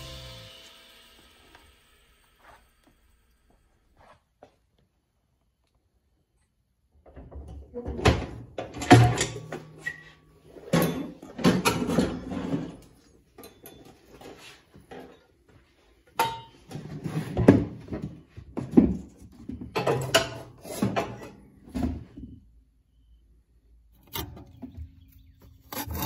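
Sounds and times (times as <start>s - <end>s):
metal clanking and scraping: 8.2s - 15.3s, 16.1s - 17.9s, 18.9s - 22.1s.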